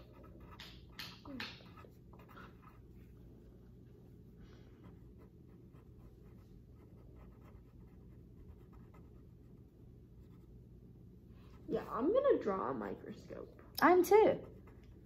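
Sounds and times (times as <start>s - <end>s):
pen scratching on paper: 0.0s - 0.9s, 1.6s - 2.9s, 4.8s - 9.3s
low room hum: 0.0s - 15.0s.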